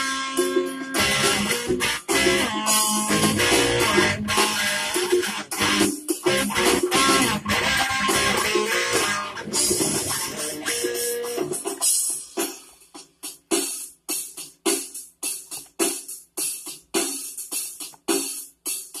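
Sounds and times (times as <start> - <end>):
fingerstyle guitar: 0.0 - 11.7
percussive guitar hits: 0.1 - 11.9.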